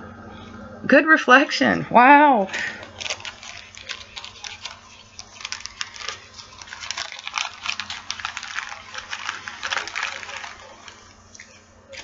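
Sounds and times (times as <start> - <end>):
plastic baggies crinkling: 2.5 - 12.0.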